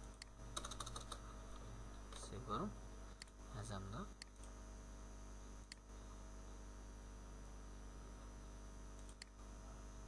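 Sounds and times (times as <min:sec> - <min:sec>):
computer mouse clicks: 0:00.0 - 0:01.2, 0:04.2 - 0:04.6, 0:05.6 - 0:05.9, 0:08.9 - 0:09.4
electrical mains hum: 0:00.0 - 0:10.0.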